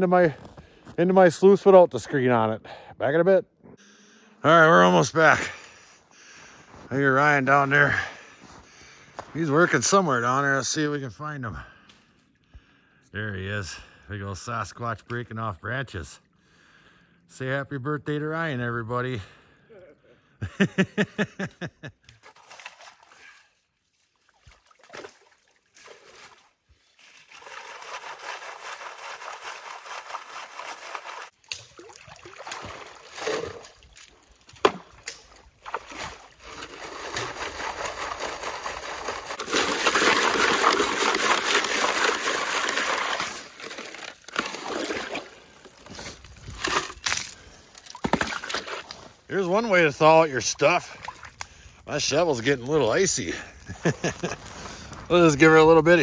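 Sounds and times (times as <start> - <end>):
water sloshing and splashing: 22.2 - 52.8
shovel scraping stones: 35.7 - 49.2.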